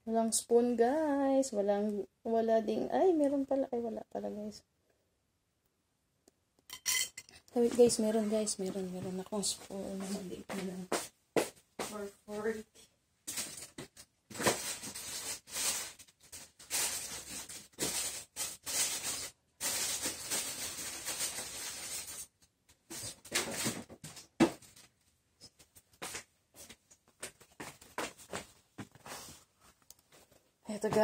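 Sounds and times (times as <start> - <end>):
rummaging rustling and scraping: 13.3 - 24.9.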